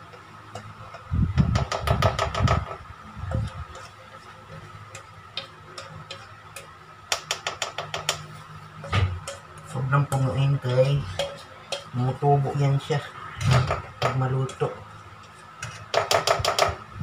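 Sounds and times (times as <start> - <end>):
spatula scraping mixing bowl: 3.3 - 14.6.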